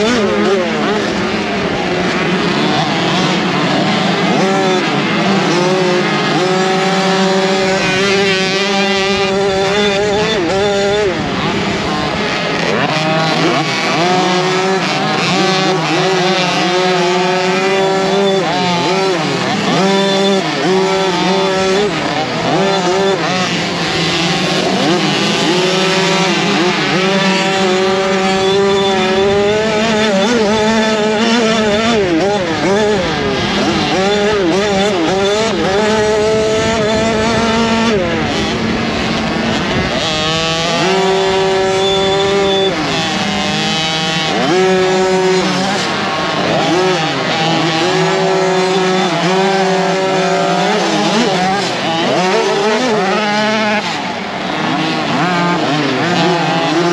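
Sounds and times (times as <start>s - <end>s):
motocross engine revving: 0.0s - 56.9s
other motorbike engines: 0.0s - 56.9s.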